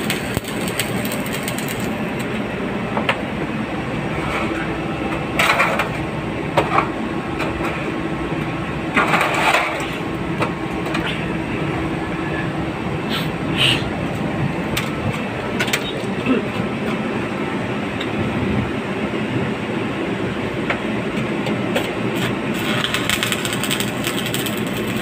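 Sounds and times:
arc welding crackling: 0:00.0 - 0:02.4, 0:22.1 - 0:25.0
machine drone: 0:00.0 - 0:25.0.

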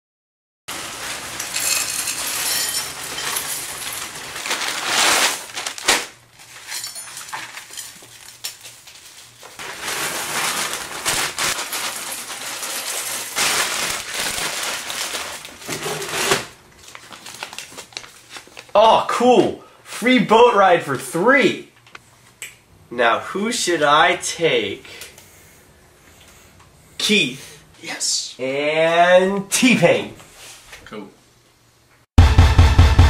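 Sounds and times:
paper packet tearing: 0:00.7 - 0:06.6, 0:07.6 - 0:18.7
spoons clinking against bowls: 0:01.4 - 0:03.9.

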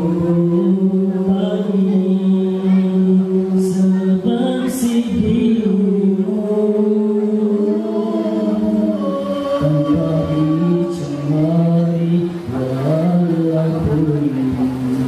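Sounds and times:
men singing in close harmony: 0:00.0 - 0:14.8.

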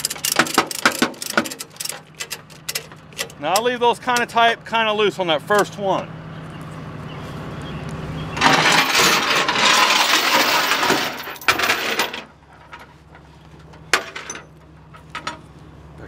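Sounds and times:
strap and chain dragged on metal: 0:08.4 - 0:12.3.

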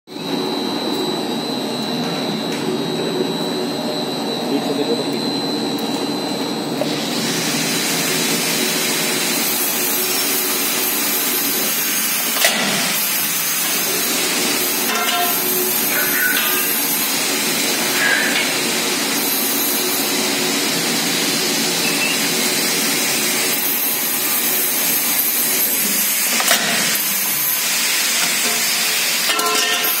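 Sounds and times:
machine whirring hiss: 0:06.8 - 0:30.0.

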